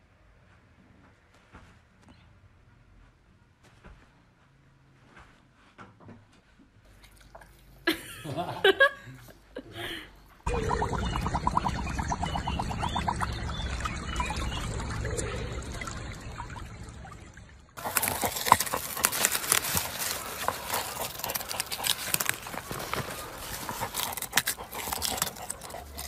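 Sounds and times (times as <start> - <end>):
water trickling and sloshing: 6.9 - 7.8, 10.5 - 26.0
dog digging in soil: 17.8 - 26.0.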